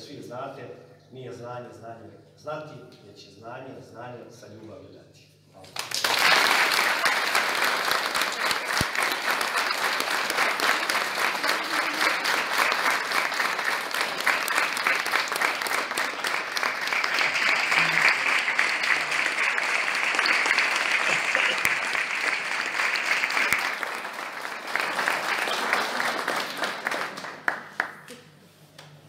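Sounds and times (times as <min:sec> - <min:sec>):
large audience applauding: 0:05.7 - 0:28.2.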